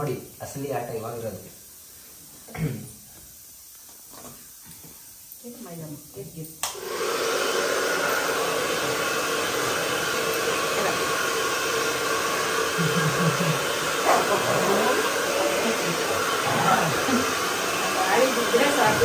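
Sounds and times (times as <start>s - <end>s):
hair dryer blowing: 6.6s - 19.0s.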